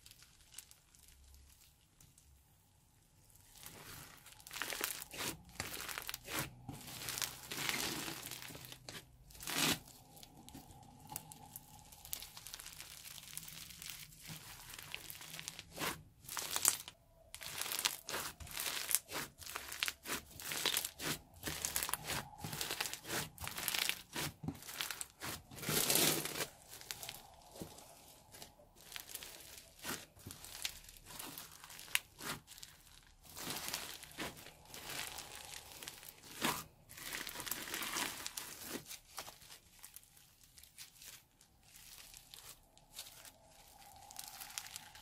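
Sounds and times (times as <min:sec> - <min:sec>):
slime crackling and crunching: 0:00.0 - 0:02.5, 0:03.2 - 0:45.0.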